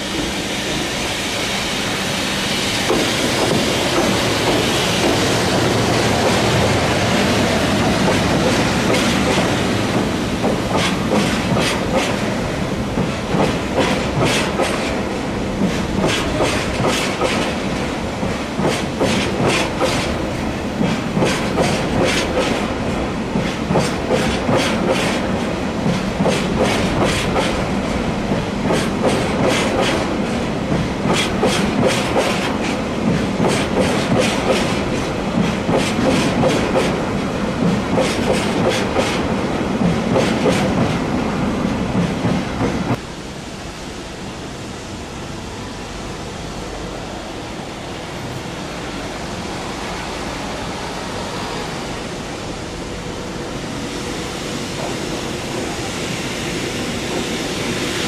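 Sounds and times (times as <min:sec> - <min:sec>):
electric locomotive approaching: 0:00.0 - 0:58.0
freight train rumbling: 0:00.0 - 0:58.0
train wheels clicking over rail joints: 0:02.6 - 0:43.0.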